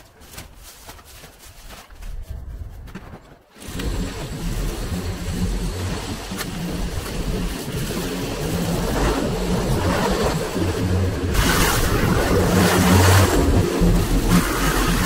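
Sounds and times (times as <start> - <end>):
lawnmower engine running: 3.5 - 15.0.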